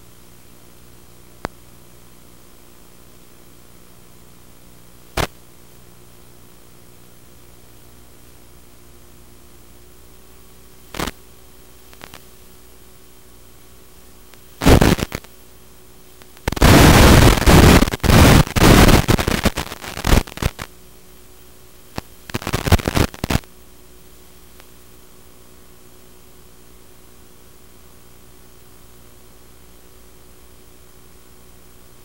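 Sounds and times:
static hiss: 0:00.0 - 0:32.0
loud crackling noise bursts: 0:05.1 - 0:05.4, 0:10.9 - 0:11.2, 0:11.8 - 0:12.3, 0:14.3 - 0:15.4, 0:16.2 - 0:20.8, 0:21.9 - 0:23.5.

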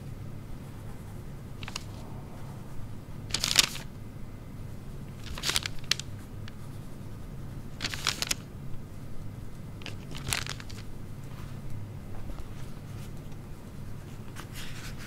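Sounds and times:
steady low hum: 0:00.0 - 0:15.0
paper rustling: 0:01.6 - 0:02.0, 0:03.3 - 0:03.9, 0:05.1 - 0:06.6, 0:07.8 - 0:08.5, 0:09.8 - 0:11.6, 0:14.0 - 0:15.0.

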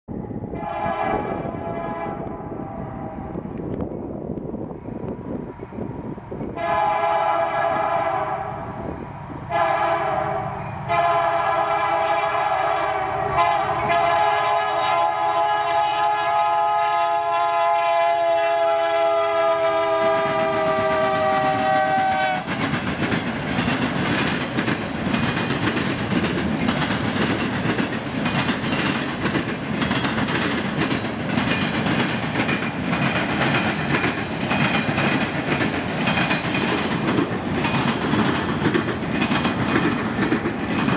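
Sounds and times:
locomotive air horn blasts: 0:00.6 - 0:03.4, 0:06.6 - 0:08.7, 0:09.5 - 0:22.6.

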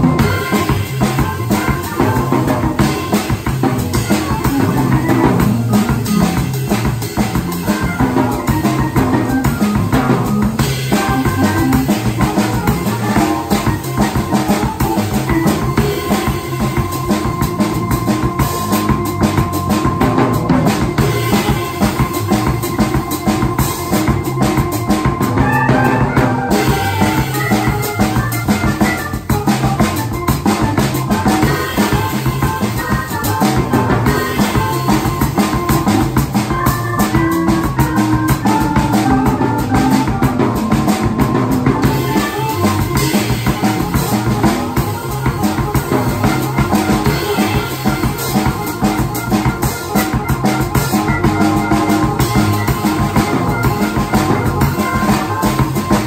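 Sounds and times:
drum kit with cymbals and snare: 0:00.0 - 0:56.0
electronic organ: 0:00.0 - 0:56.0
organ pedal bass line: 0:00.0 - 0:56.0.

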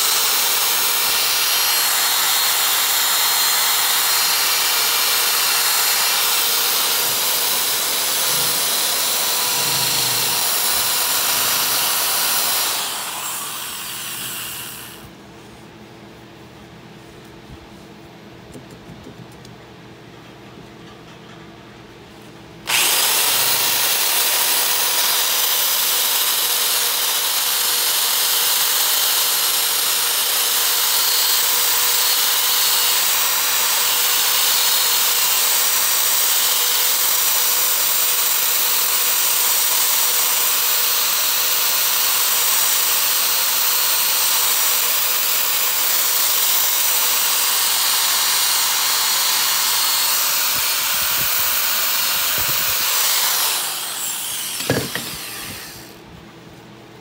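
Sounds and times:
sanding disc grinding metal: 0:53.9 - 0:55.7.

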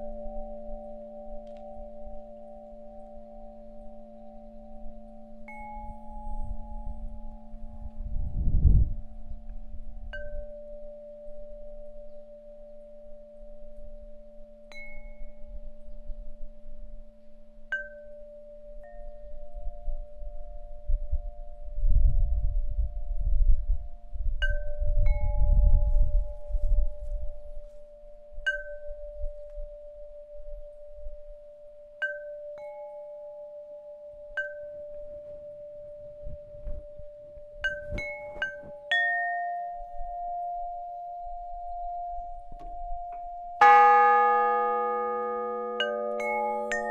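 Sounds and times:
metal chimes ringing: 0:00.0 - 0:21.7, 0:24.4 - 0:46.9
higher chime strikes: 0:43.6 - 0:46.9.

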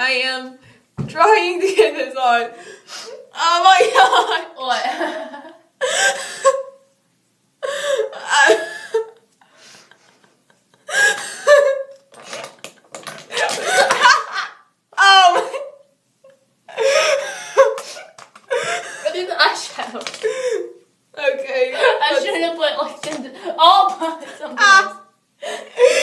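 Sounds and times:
woman laughing: 0:03.8 - 0:06.8, 0:09.9 - 0:12.0, 0:13.3 - 0:15.8, 0:16.7 - 0:19.4, 0:21.6 - 0:22.5.

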